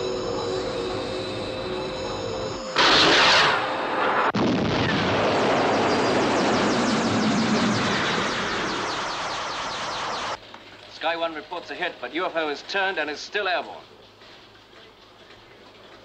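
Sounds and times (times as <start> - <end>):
jet roar: 0.0 - 10.4
jet whine: 0.0 - 10.4
missile launch blast: 2.8 - 9.9.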